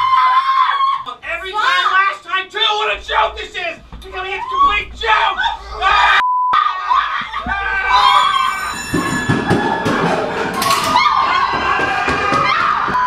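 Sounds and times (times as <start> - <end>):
excited voices: 0.0 - 13.0
dull thuds: 2.7 - 6.1.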